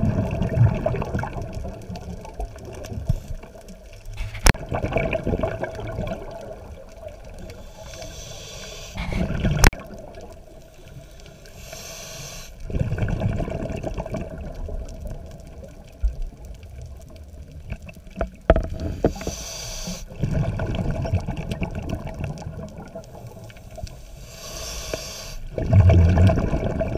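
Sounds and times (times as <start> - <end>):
exhale bubbles rushing: 0.0 - 1.6, 4.6 - 6.7, 9.0 - 9.8, 12.6 - 14.5, 25.5 - 26.9
regulator inhale hiss: 7.4 - 9.4, 10.6 - 12.6, 18.8 - 20.1, 23.1 - 25.5.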